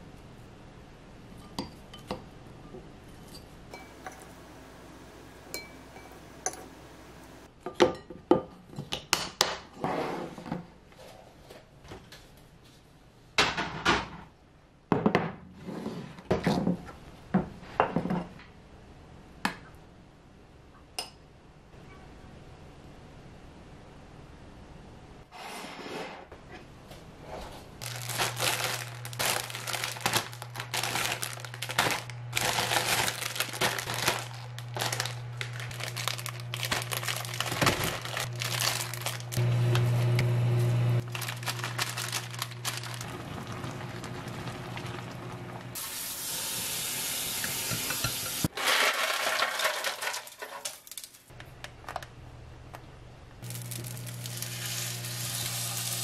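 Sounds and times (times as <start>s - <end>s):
metal spoon clinking on dish: 5.6s - 6.7s
plastic wrapper crinkling: 27.8s - 39.4s, 41.0s - 44.0s, 53.4s - 56.0s.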